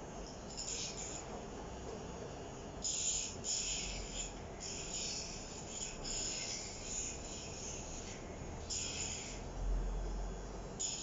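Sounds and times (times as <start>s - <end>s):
nail file rasping on claws: 0.5s - 1.2s, 2.8s - 9.5s.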